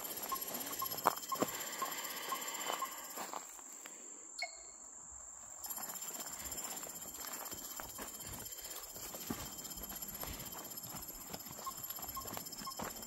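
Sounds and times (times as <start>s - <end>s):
high insect drone: 0.0s - 13.0s
short beeps: 0.2s - 3.2s, 4.4s - 4.8s, 9.4s - 13.0s
footsteps on gravel: 5.7s - 13.0s.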